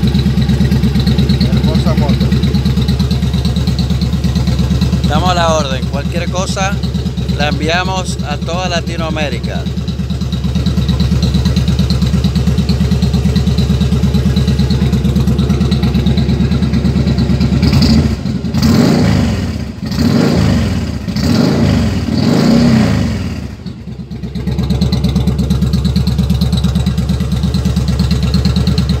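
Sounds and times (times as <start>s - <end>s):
motorcycle engine idling: 0.0s - 29.0s
motorcycle engine revving: 0.0s - 29.0s.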